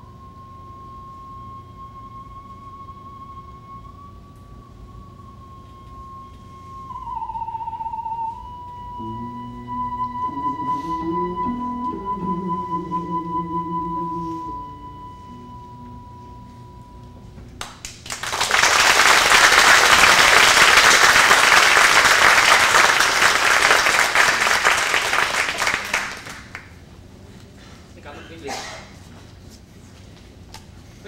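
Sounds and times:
steady high ringing tone: 0.0 - 17.6
monochord duet: 7.8 - 17.6
audience applause: 17.6 - 26.7.

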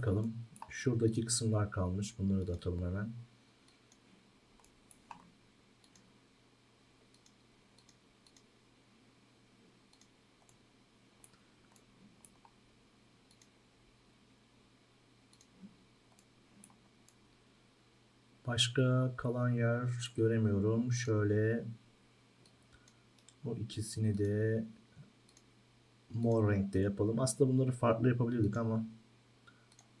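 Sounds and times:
computer mouse clicks: 3.6 - 4.0, 4.6 - 6.1, 7.1 - 8.5, 9.9 - 10.6, 11.2 - 12.6, 13.3 - 13.6, 15.3 - 17.2, 22.4 - 23.4, 25.2 - 25.5, 29.5 - 30.0.

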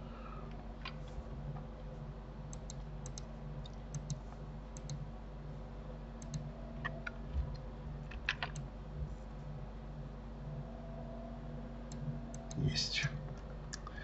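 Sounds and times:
steady low hum: 0.0 - 14.0
mouse clicks: 2.5 - 4.2, 4.8 - 5.0, 6.2 - 7.1.

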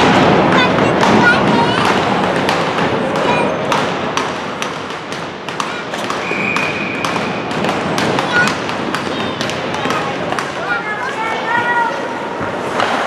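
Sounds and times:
referee's whistle: 6.2 - 7.4.

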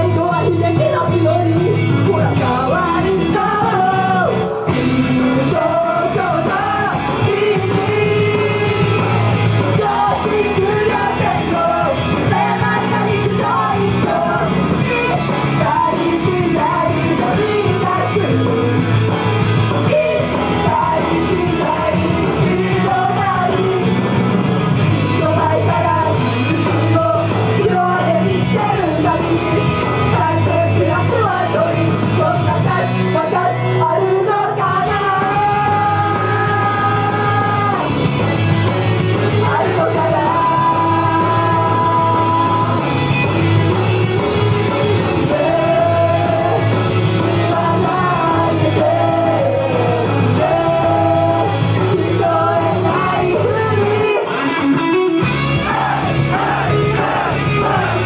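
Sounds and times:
women singing into microphones: 0.0 - 38.0, 39.2 - 43.2, 44.6 - 54.7
loud rock-style pop music: 0.0 - 58.0
shouted vocals: 45.0 - 54.3, 55.3 - 58.0.

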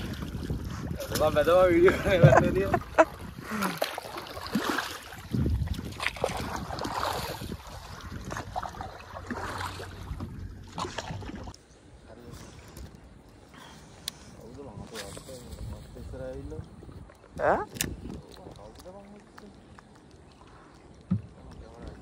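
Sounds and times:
wind on microphone: 0.0 - 3.7, 4.5 - 11.5, 14.6 - 18.8
paddle strokes splashing: 0.0 - 11.6
water lapping against hull: 0.0 - 22.0.

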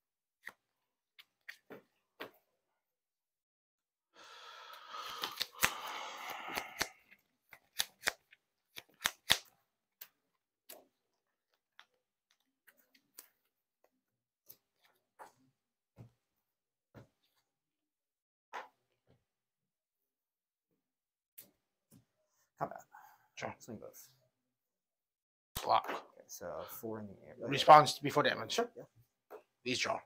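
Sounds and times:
cards shuffling: 4.9 - 13.5
cards clicking and tapping on mat: 5.0 - 5.8, 7.5 - 10.9.

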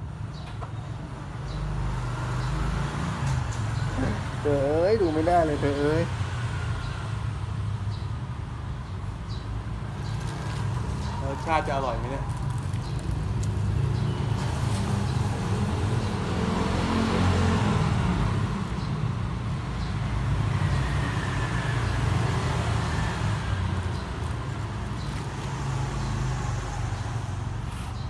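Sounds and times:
vehicle engine rumble: 7.4 - 28.0.

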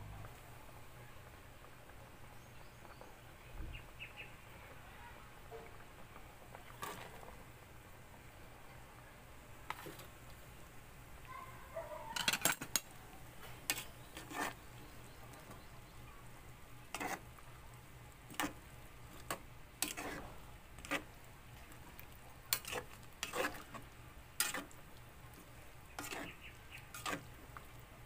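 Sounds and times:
spatula scraping pot: 6.7 - 7.3, 12.1 - 15.7, 16.8 - 17.4, 18.3 - 27.5.

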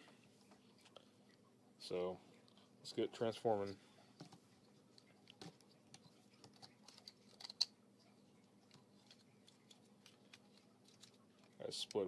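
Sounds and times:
plastic toy parts clicking: 6.5 - 7.7.

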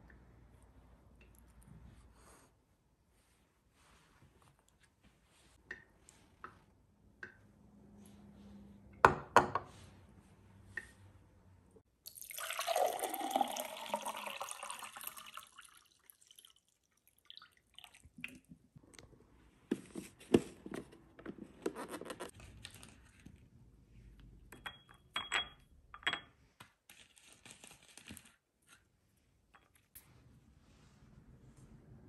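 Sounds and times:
water poured into a glass: 12.1 - 18.4
clinks on a ceramic bowl: 24.6 - 26.3.

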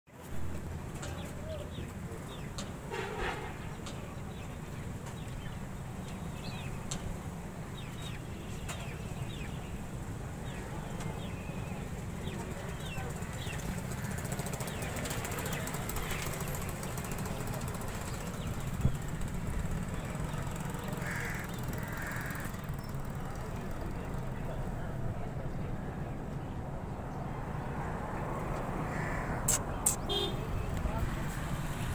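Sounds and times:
birds chirping: 0.6 - 31.0
bird cawing calls: 13.6 - 14.8, 20.6 - 22.8, 28.8 - 30.3.

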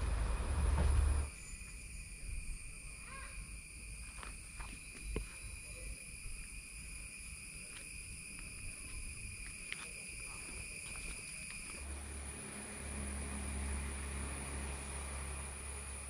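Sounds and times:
low rumble: 0.0 - 1.3
insects calling: 0.0 - 16.0.

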